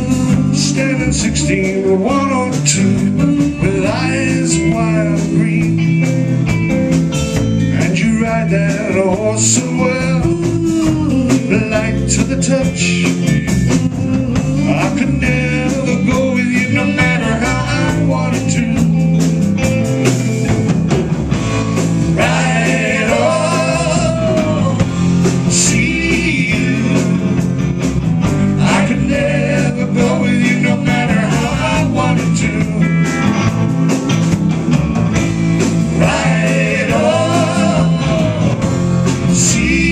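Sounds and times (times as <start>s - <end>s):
person singing: 0.0s - 6.3s, 7.7s - 19.0s, 22.2s - 27.3s, 28.5s - 33.1s, 36.0s - 39.9s
bass guitar: 0.0s - 39.9s
drum kit: 0.0s - 39.9s
guitar: 0.0s - 39.9s.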